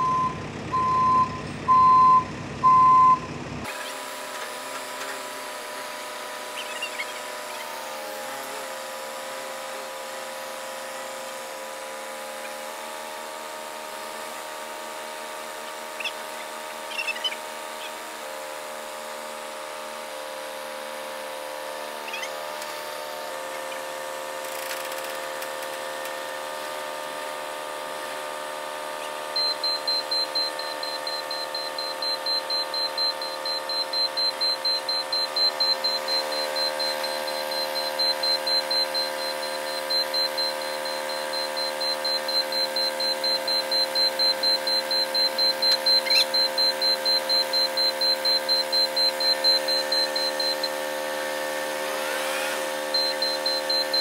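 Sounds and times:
high-pitched warning beeps: 0.0s - 3.3s, 29.3s - 50.8s, 52.8s - 54.0s
engine hum: 0.0s - 8.8s.

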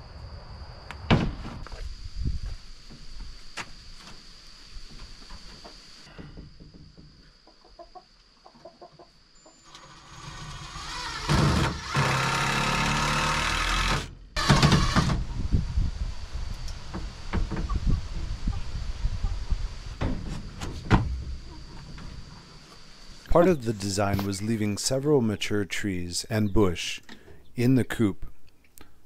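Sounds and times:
chickens clucking: 7.2s - 9.7s, 17.6s - 19.7s.

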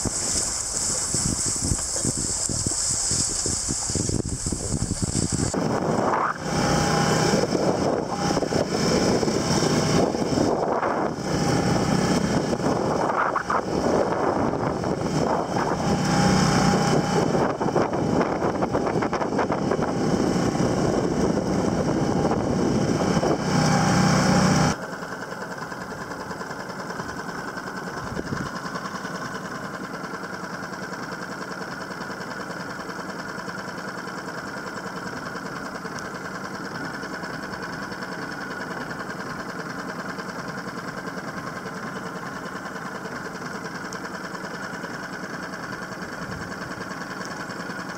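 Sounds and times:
heavy wind: 0.0s - 23.7s
water noise: 0.0s - 24.8s
small boat engine running: 0.0s - 47.9s.

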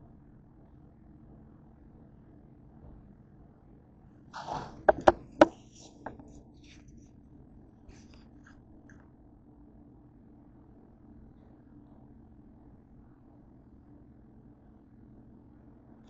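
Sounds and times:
short scrape: 4.4s - 4.9s.

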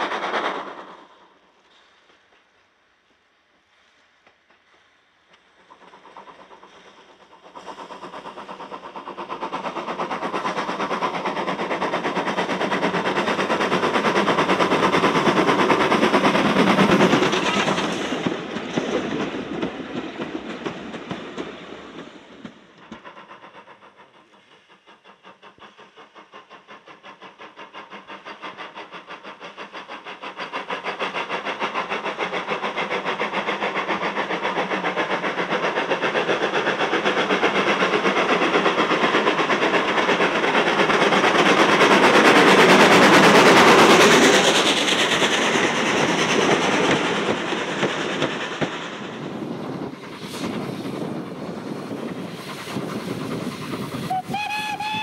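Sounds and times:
steam locomotive chuffing: 0.0s - 55.0s
steam locomotive exhaust beats: 0.0s - 55.0s.

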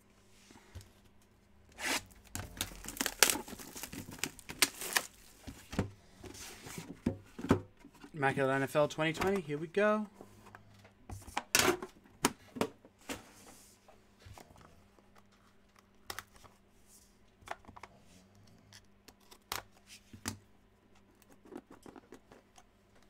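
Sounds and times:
packaging rustling: 1.9s - 5.7s.

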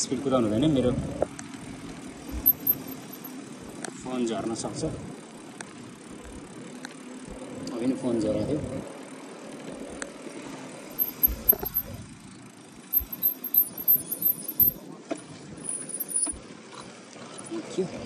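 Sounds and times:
bicycle tyre rolling on tarmac: 0.0s - 2.4s, 3.0s - 18.0s
bike rattling and clinking: 2.3s - 3.4s, 10.9s - 12.0s, 12.9s - 14.8s, 15.6s - 16.4s.

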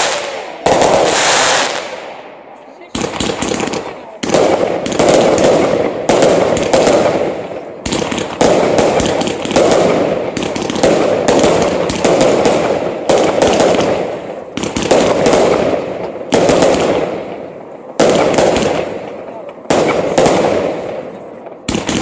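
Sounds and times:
fireworks bursting: 0.0s - 22.0s.

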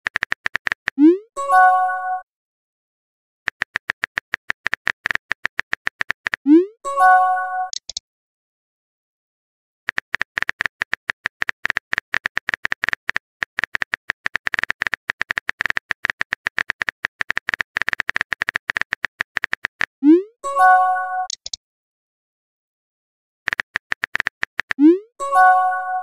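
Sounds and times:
typing clicks: 0.0s - 1.1s, 3.5s - 6.5s, 7.7s - 8.0s, 9.9s - 19.9s, 21.2s - 21.6s, 23.5s - 24.9s.

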